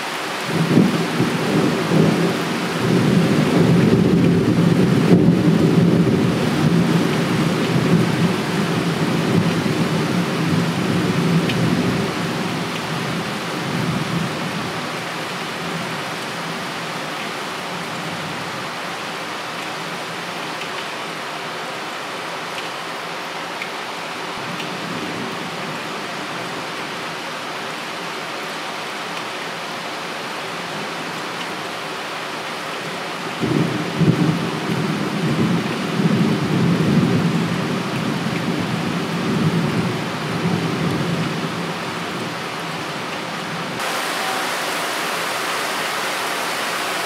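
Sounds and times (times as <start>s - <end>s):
heavy rain hissing: 43.7s - 47.0s.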